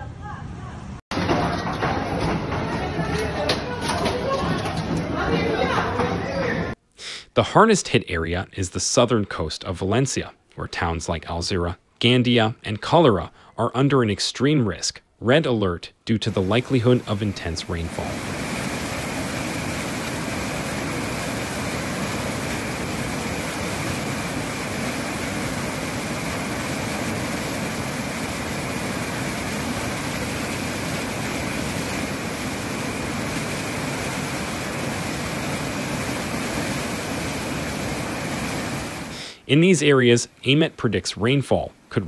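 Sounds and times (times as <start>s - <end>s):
floodwater rushing: 16.3s - 39.2s.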